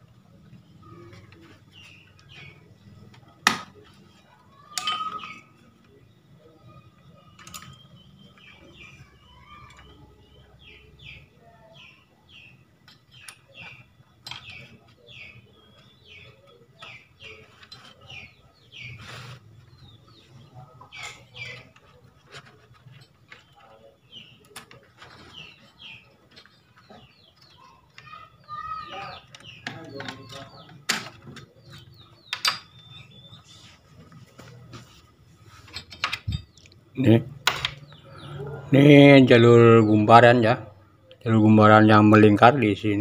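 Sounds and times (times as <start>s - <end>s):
small birds chirping: 0.0s - 43.0s.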